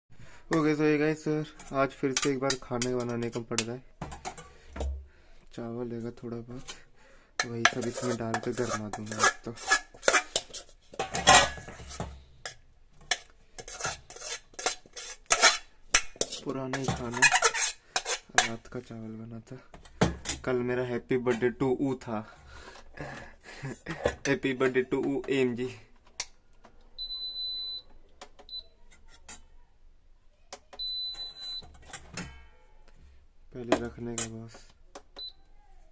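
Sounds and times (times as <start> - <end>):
spoon scraping a steel bowl: 7.4 - 12.1, 13.1 - 18.6
cooktop control panel beeping: 30.8 - 31.7.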